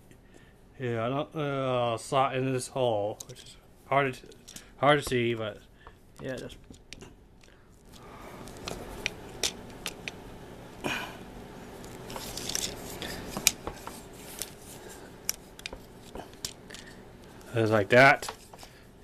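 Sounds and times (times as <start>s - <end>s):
fingers rustling on toy: 11.8s - 17.4s.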